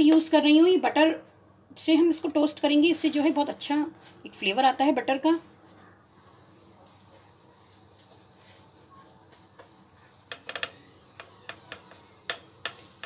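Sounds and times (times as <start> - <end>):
butter sizzling in a pan: 6.0 - 13.0
short crackles and pops: 6.1 - 13.0.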